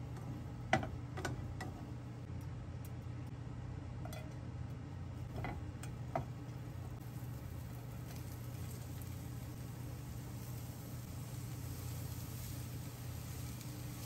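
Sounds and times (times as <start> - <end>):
onions sizzling in oil: 5.3 - 14.0.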